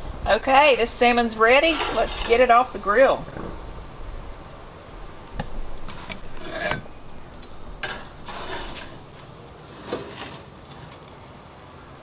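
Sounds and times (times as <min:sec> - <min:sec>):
spatula scraping grill grates: 0:01.6 - 0:03.0, 0:05.8 - 0:07.2, 0:07.8 - 0:10.4.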